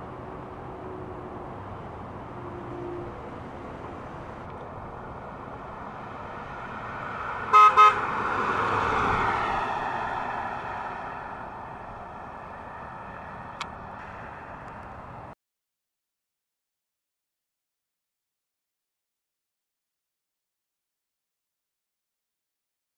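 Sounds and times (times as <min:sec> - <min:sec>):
car driving past: 0:05.2 - 0:14.9
car horn toots: 0:07.5 - 0:08.1.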